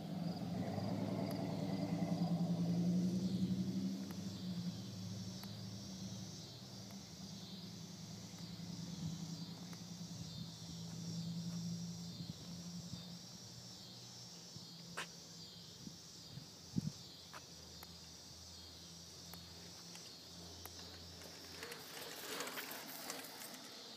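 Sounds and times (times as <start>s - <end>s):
low engine hum: 0.0s - 13.5s
insect chorus chirring: 0.0s - 23.9s.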